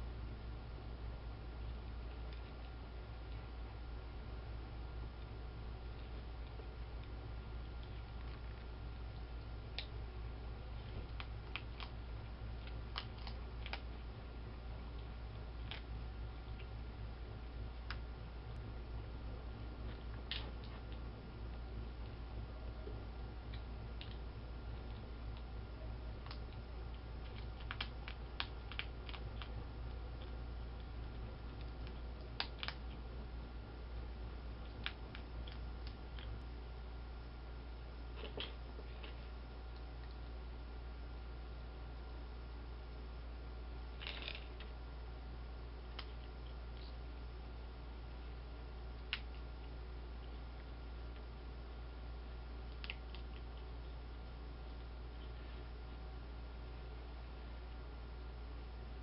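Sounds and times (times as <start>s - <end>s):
low hum: 0.0s - 59.0s
animal crunching dry kibble: 5.1s - 16.8s, 22.8s - 36.4s, 38.1s - 40.4s, 43.8s - 44.8s, 52.6s - 53.9s.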